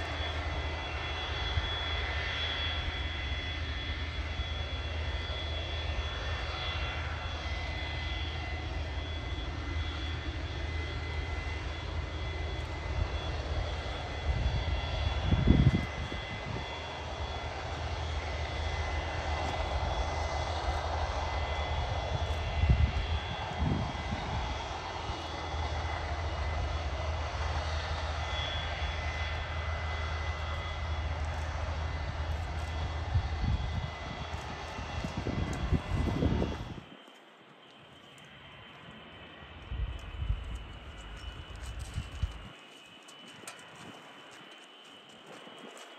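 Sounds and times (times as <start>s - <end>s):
jet engines running: 0.0s - 45.9s.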